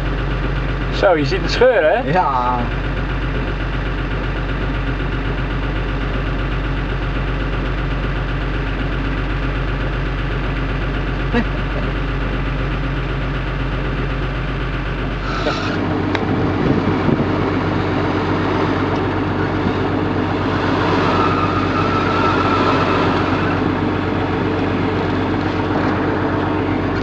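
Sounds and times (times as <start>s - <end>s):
off-road engine working under load: 0.0s - 27.0s
engine revving: 15.0s - 27.0s.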